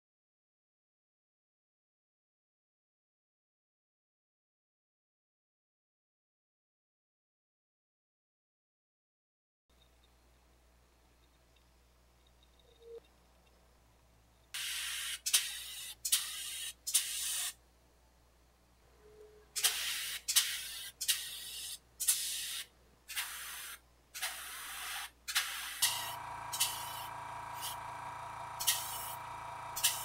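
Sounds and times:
airbrush spraying hiss: 0:14.6 - 0:17.6, 0:19.6 - 0:27.8, 0:28.6 - 0:29.2, 0:29.8 - 0:30.0.

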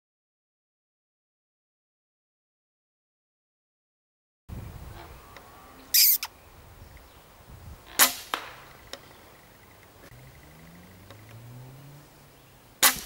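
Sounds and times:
loud hissing burst: 0:05.9 - 0:06.3
air rifle shot: 0:08.0 - 0:08.7, 0:12.8 - 0:13.0.

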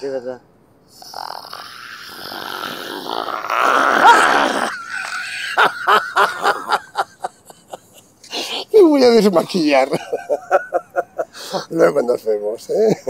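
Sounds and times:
man laughing hard: 0:03.9 - 0:08.7, 0:09.8 - 0:11.7.

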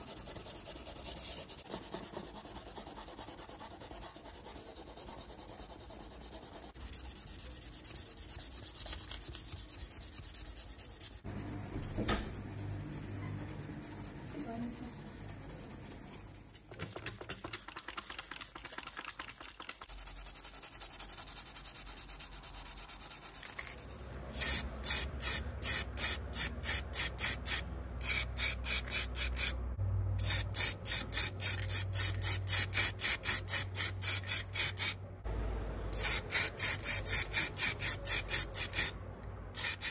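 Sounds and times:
sponge rubbing on metal: 0:00.0 - 0:16.7
low hum: 0:35.0 - 0:36.0.

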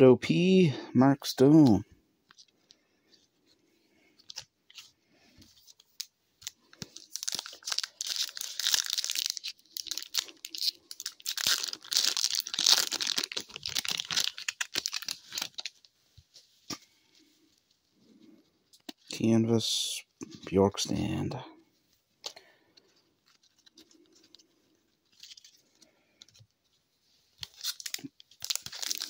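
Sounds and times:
foil pack crackling rustle: 0:05.8 - 0:15.9, 0:27.4 - 0:29.0.

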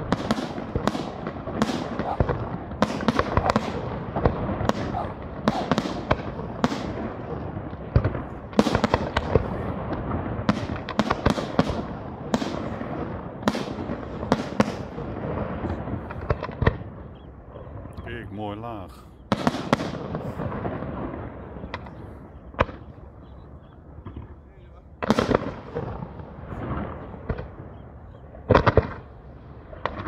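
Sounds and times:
firework shells bursting: 0:00.0 - 0:23.0.

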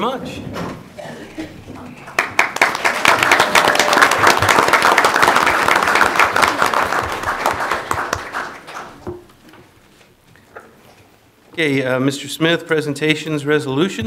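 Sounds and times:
people applauding: 0:01.8 - 0:09.1.

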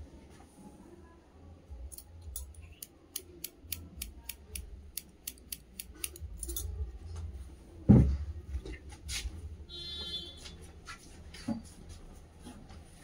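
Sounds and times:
scissors snipping hair: 0:01.9 - 0:06.7.

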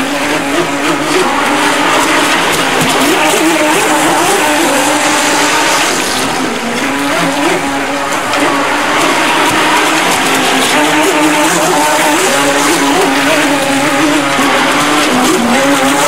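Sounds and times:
electric motor whining: 0:00.0 - 0:16.0
hull spraying through water: 0:00.0 - 0:16.0.

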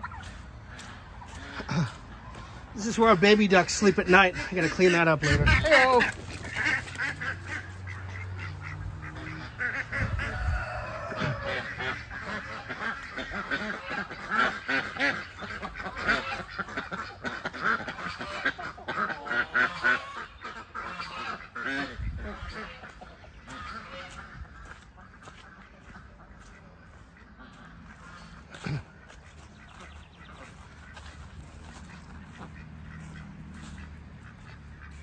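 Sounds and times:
ducks quacking: 0:00.0 - 0:35.0.

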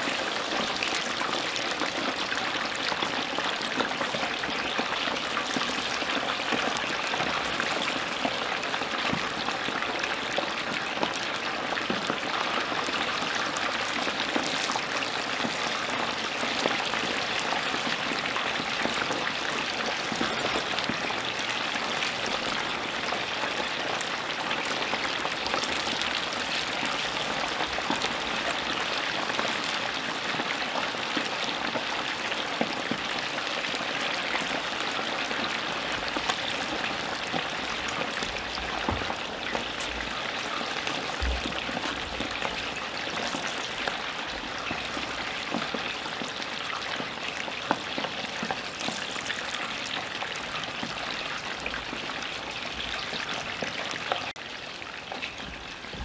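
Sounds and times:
oil sizzling with crackling pops: 0:00.0 - 0:56.0.

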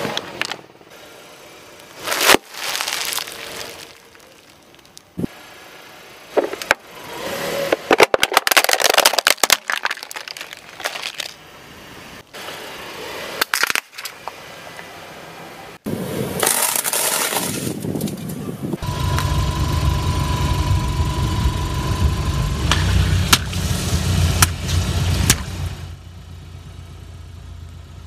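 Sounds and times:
tyre crushing brittle plastic: 0:01.8 - 0:05.2, 0:07.7 - 0:11.4, 0:13.4 - 0:14.2.

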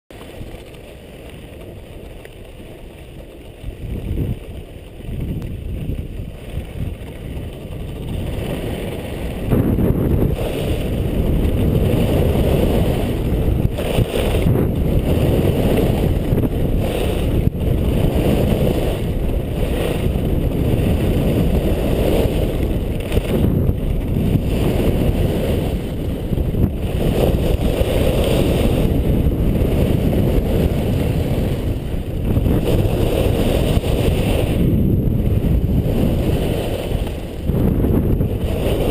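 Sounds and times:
wind buffeting microphone: 0:00.2 - 0:38.9.

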